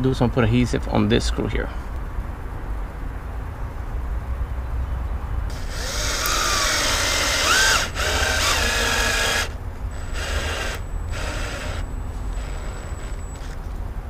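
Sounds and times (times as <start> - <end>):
cordless drill driving a screw: 5.5 - 13.6.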